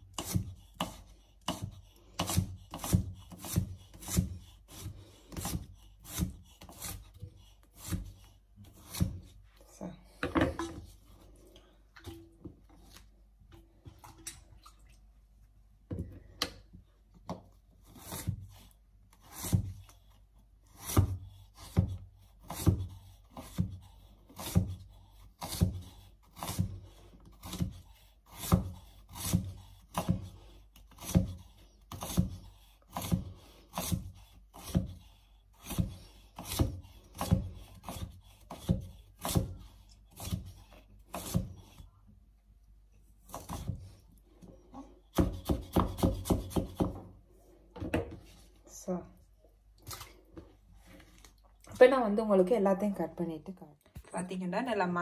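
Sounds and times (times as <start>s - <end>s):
knife chopping on cutting board: 0.1s - 9.4s, 24.4s - 26.7s, 27.4s - 30.3s, 30.9s - 41.8s, 45.1s - 47.1s.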